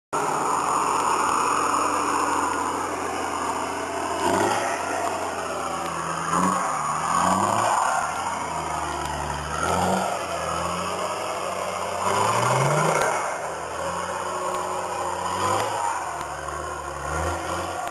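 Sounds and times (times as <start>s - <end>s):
engine revving under load: 0.2s - 17.9s.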